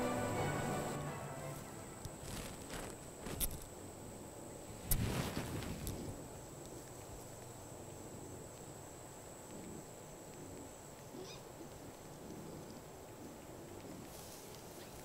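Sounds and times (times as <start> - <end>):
faint animal calls: 10.4 - 15.0.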